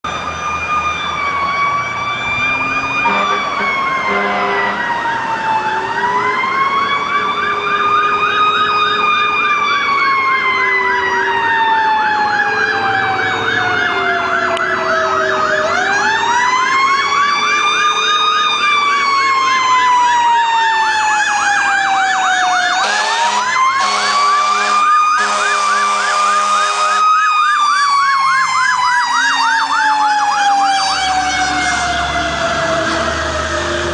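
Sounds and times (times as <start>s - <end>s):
siren wail: 0.0s - 33.9s
siren fast yelp: 0.3s - 33.9s
horn blasts: 3.0s - 4.8s, 22.8s - 27.0s.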